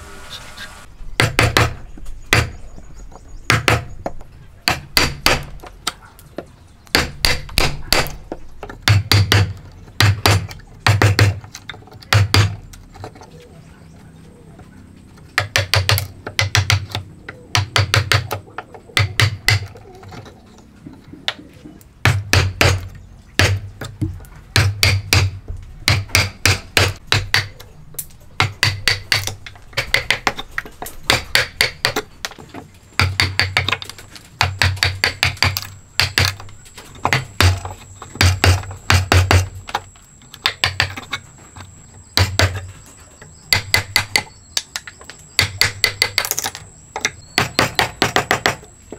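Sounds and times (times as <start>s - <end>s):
mallet striking wood chisel: 1.2s - 2.6s, 3.5s - 6.0s, 6.9s - 12.6s, 15.4s - 18.4s, 19.0s - 19.8s, 22.0s - 27.7s, 28.4s - 30.5s, 31.1s - 32.4s, 33.0s - 33.8s, 34.4s - 39.6s, 40.4s - 41.1s, 42.2s - 42.7s, 43.5s - 48.7s.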